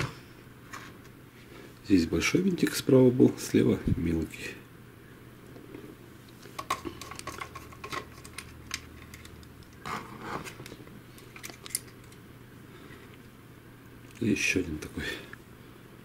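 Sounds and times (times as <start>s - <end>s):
clicks and taps of plastic parts: 6.5s - 9.8s.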